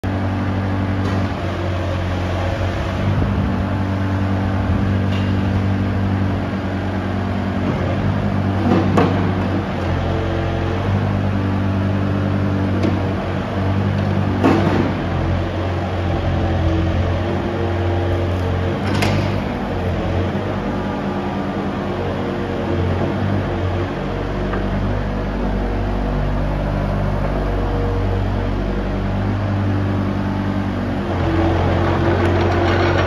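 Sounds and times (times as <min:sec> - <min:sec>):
excavator diesel engine running: 0:00.0 - 0:33.0
excavator clunks: 0:04.6 - 0:06.1, 0:07.5 - 0:10.5, 0:12.6 - 0:21.8, 0:31.1 - 0:33.0.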